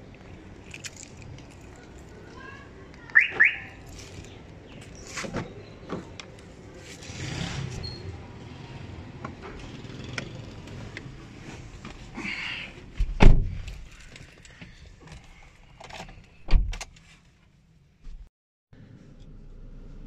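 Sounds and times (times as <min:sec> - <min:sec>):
car door thump: 0:13.0 - 0:13.6.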